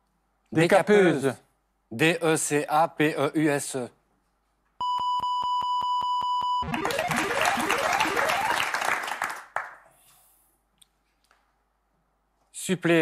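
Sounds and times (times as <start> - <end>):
rising electronic tones: 6.6 - 8.7
applause-like noise: 6.6 - 10.0.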